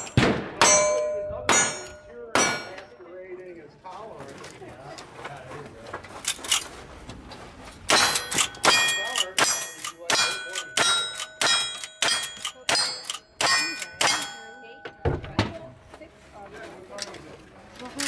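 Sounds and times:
steel target clanging: 0.0s - 2.9s, 7.9s - 15.3s.

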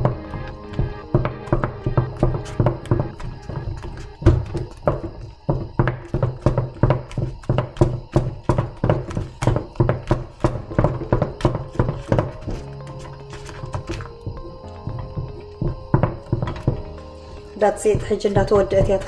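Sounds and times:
wooden spoon knocking saucepan: 4.3s - 17.0s, 18.0s - 19.0s.

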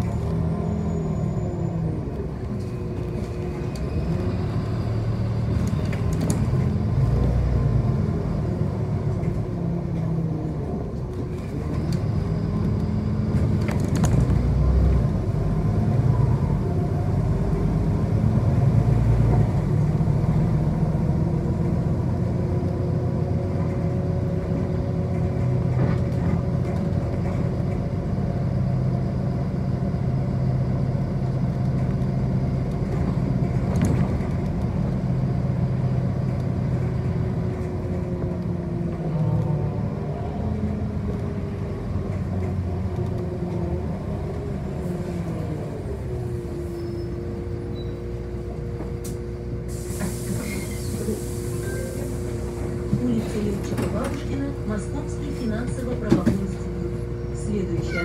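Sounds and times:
bus drivetrain and road rumble: 0.0s - 58.0s.

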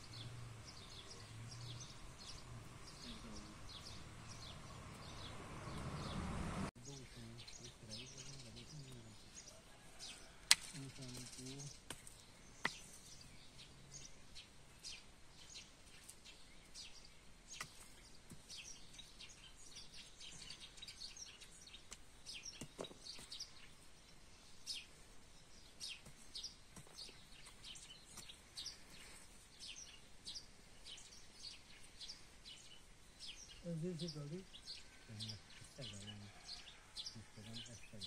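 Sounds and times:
small birds chirping: 0.0s - 38.0s
hand hoe striking soil: 11.8s - 12.9s, 21.9s - 23.3s, 25.9s - 28.4s.

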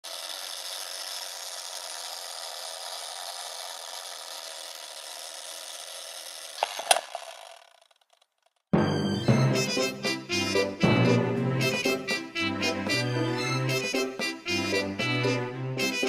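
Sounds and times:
sharp clicks: 6.5s - 8.6s
music: 8.8s - 16.0s.

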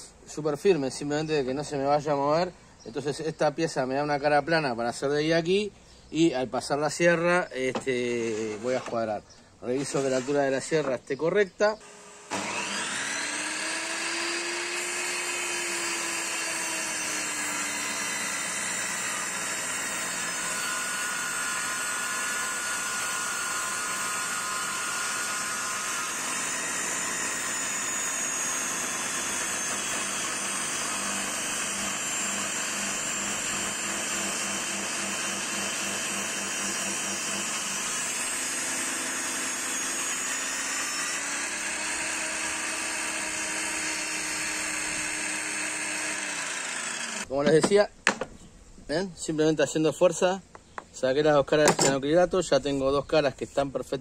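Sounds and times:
table saw ripping timber: 7.7s - 11.0s, 11.8s - 48.3s, 51.6s - 52.0s.

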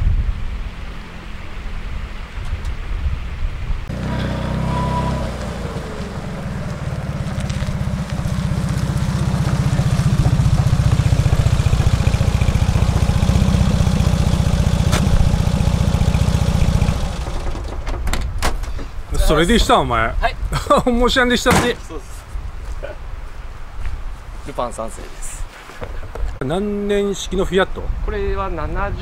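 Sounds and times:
small car engine running: 3.9s - 17.8s.

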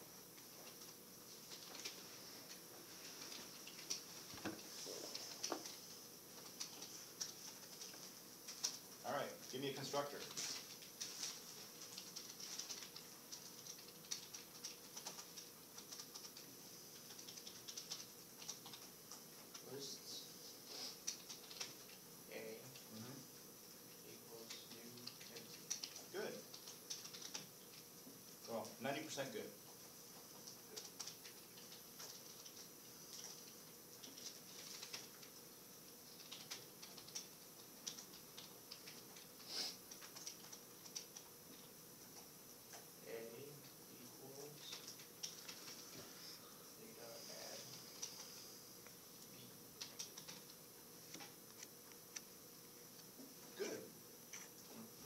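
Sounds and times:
typing on computer keyboard: 11.8s - 19.6s, 21.0s - 22.0s, 24.4s - 27.5s, 30.4s - 35.3s, 36.1s - 39.3s, 39.9s - 41.3s, 49.8s - 50.6s.

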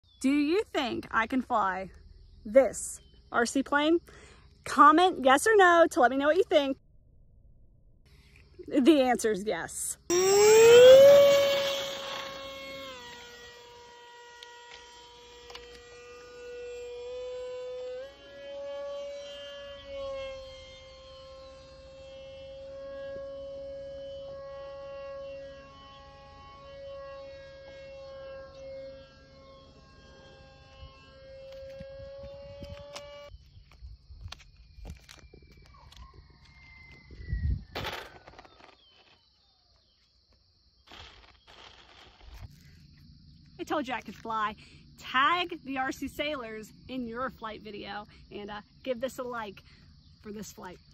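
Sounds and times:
model plane propeller whining: 10.1s - 33.3s
wind buffeting microphone: 37.0s - 37.8s.

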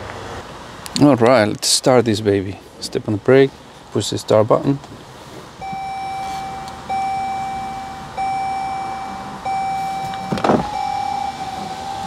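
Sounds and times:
dashboard warning chime: 5.6s - 12.0s.

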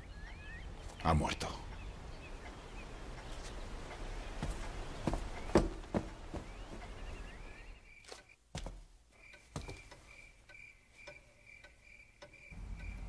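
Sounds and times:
soft knocks: 4.4s - 7.0s
faint high chirp: 6.4s - 8.4s.

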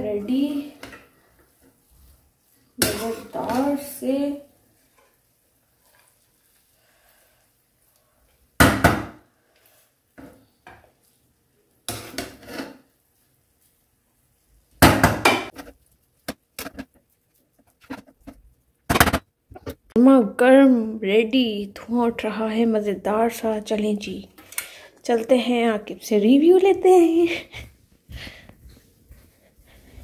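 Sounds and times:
metal spatula scraping pan: 2.8s - 5.2s, 11.9s - 12.9s.

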